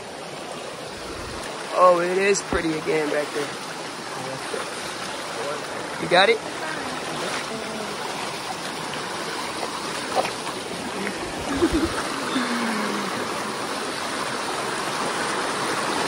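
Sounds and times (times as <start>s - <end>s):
stream rushing over stones: 0.0s - 16.0s.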